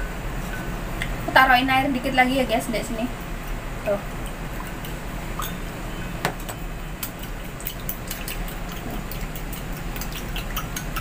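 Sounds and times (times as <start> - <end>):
steady low hum: 0.0 - 11.0
spoon clinking ceramic bowl: 4.6 - 5.6.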